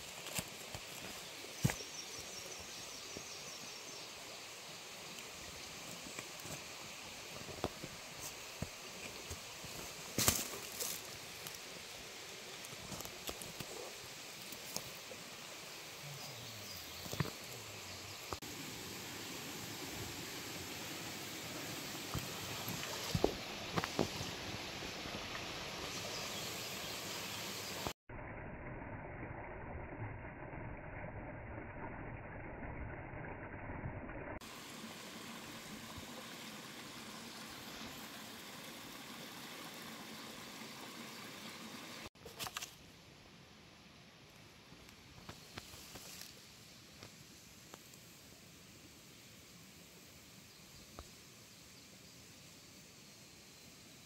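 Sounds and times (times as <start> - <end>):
steady background hiss: 0.0 - 27.9, 34.5 - 54.0
stream rushing over rocks: 0.0 - 27.9.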